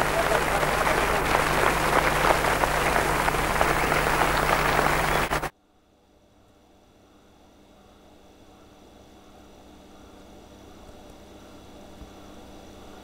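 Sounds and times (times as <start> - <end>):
crowd applause: 0.0 - 5.5
faint hiss: 0.0 - 5.5.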